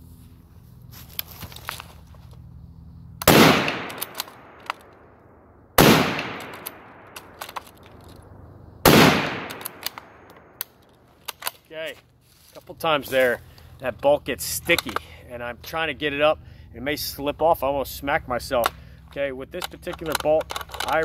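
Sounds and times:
rifle shots: 3.2s - 4.9s, 5.8s - 7.6s, 8.8s - 10.5s
rifle bolt clicking: 3.2s - 5.0s, 6.0s - 8.2s, 8.9s - 11.6s, 19.6s - 21.0s.

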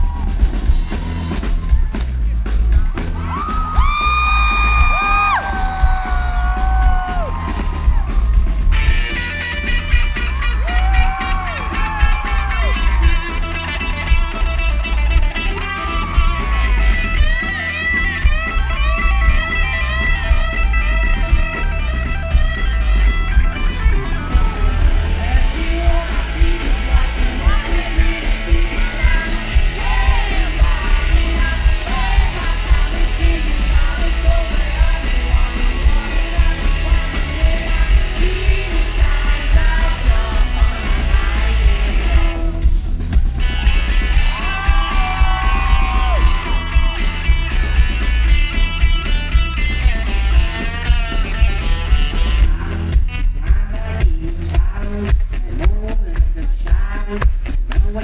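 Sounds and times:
live rock band playing: 0.0s - 58.0s
man singing: 24.2s - 43.7s, 49.9s - 58.0s.

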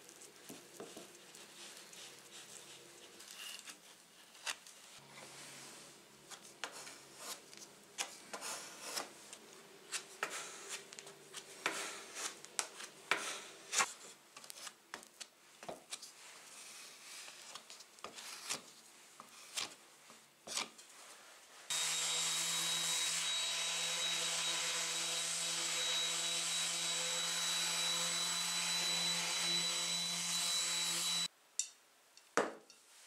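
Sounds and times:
plastic spatula scraping wood: 9.9s - 14.7s.

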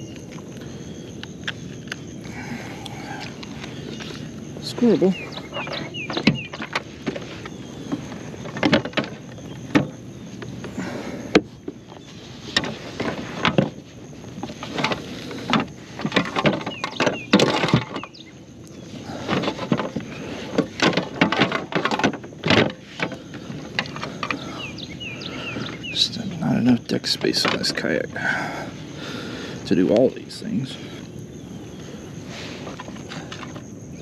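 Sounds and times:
fishing gear knocking and rattling: 3.1s - 25.9s, 26.7s - 28.1s, 32.6s - 33.7s.

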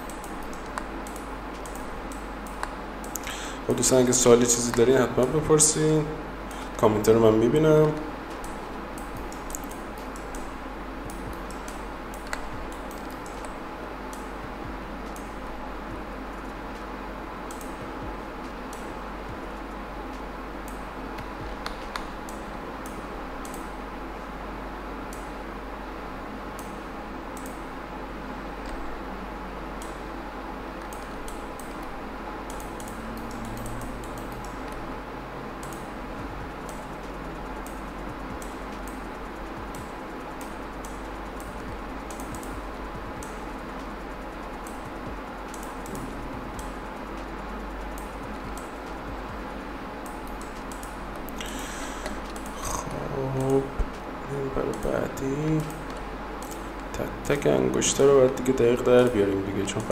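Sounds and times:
keyboard and mouse clicks: 0.0s - 3.9s, 7.8s - 10.5s, 11.1s - 14.4s, 16.3s - 18.1s, 19.5s - 23.7s, 27.4s - 27.6s, 30.8s - 31.9s, 32.5s - 34.8s, 35.6s - 54.0s, 54.6s - 59.9s
low hum: 0.0s - 59.9s
steady hiss: 0.0s - 59.9s.

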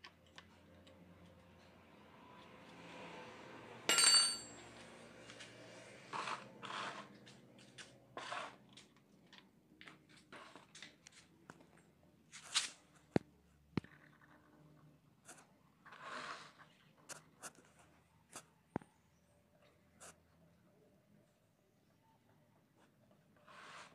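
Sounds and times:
metal tool clanking: 3.9s - 4.6s.

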